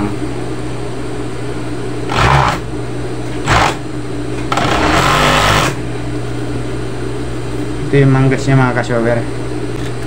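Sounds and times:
sewing machine stitching: 2.1s - 2.6s, 4.5s - 5.8s
sewing machine motor hum: 2.1s - 2.7s, 3.4s - 3.8s, 4.5s - 5.8s.

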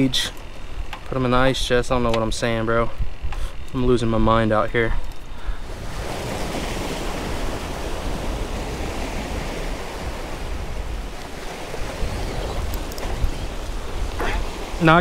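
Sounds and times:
wind on microphone: 0.0s - 15.0s
surf breaking on rocks: 5.6s - 15.0s.

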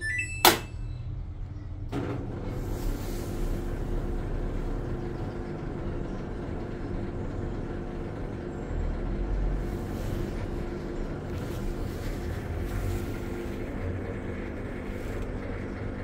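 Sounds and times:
washing machine running: 0.0s - 16.0s.

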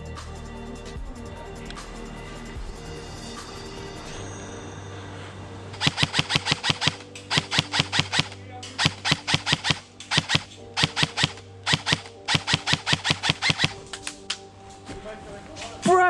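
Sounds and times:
airsoft gun automatic bursts: 5.8s - 13.9s.

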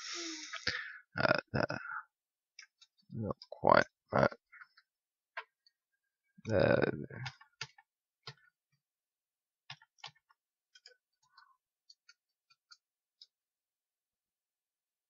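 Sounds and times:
keyboard and mouse clicks: 7.2s - 8.6s, 9.7s - 13.4s.

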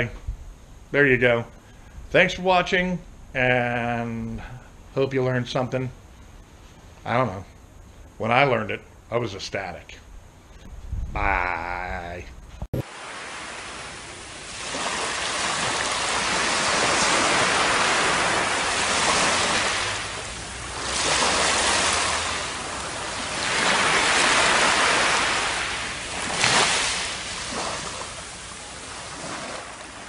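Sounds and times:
surf washing up on beach: 12.8s - 30.0s.

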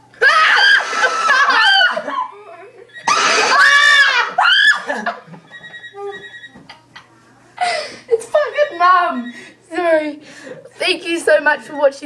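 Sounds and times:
loud high-pitched screams: 0.3s - 2.0s, 3.0s - 4.9s
faint phone ringtone: 5.5s - 6.6s.

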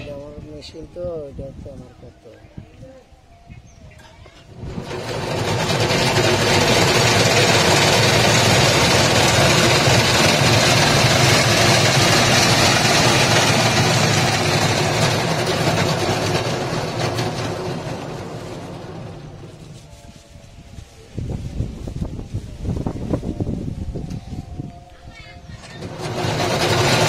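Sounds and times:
cotton candy machine whirring: 4.5s - 20.1s, 24.0s - 27.0s.

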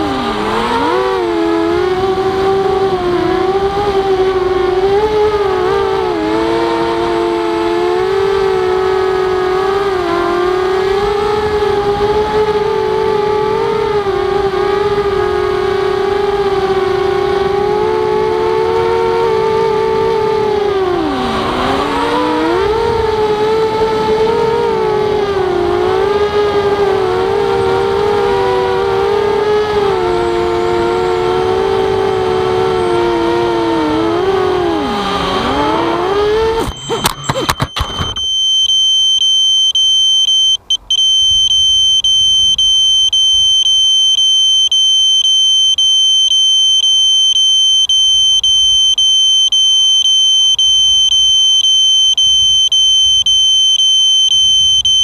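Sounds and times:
drone motors whining: 0.0s - 38.4s
high-pitched alarm tone: 33.9s - 40.4s.

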